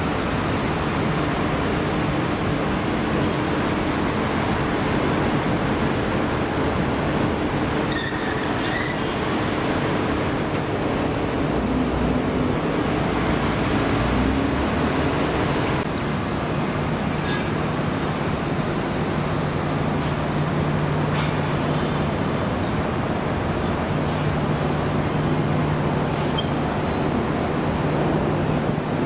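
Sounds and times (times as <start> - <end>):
road traffic noise: 0.0 - 29.0
faint high squeaks: 26.3 - 26.6.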